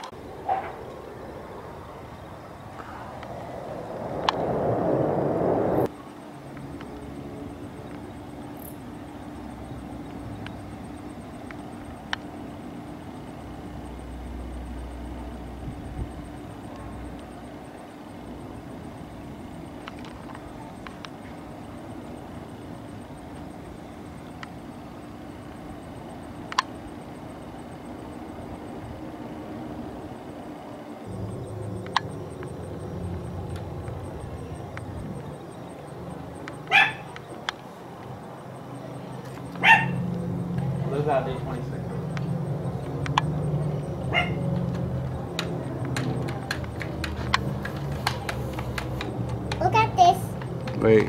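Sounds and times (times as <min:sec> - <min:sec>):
distant propeller plane drone: 0:00.0 - 0:51.0
dog barking: 0:36.7 - 0:37.1, 0:39.6 - 0:40.0, 0:44.1 - 0:44.5.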